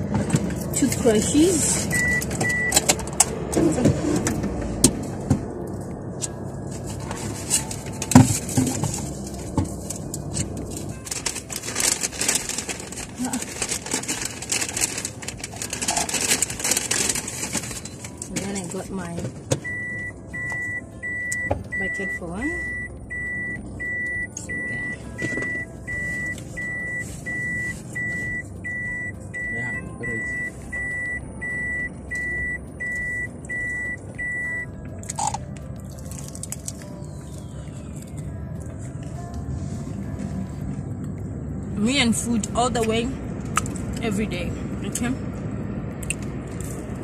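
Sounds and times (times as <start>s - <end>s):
low background rumble: 0.0s - 47.0s
low hum inside a car: 0.0s - 47.0s
electronic warning beep: 1.9s - 2.8s, 19.6s - 34.7s.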